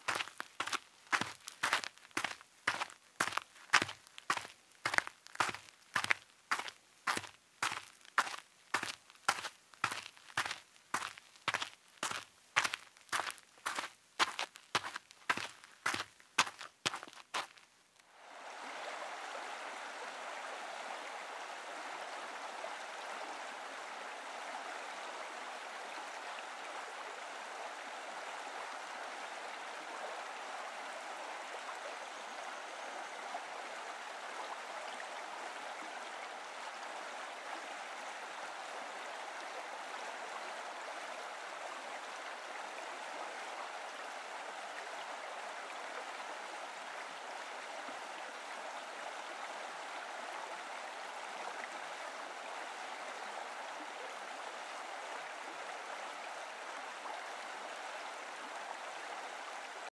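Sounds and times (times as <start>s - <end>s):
stream running over stones: 0.0s - 59.9s.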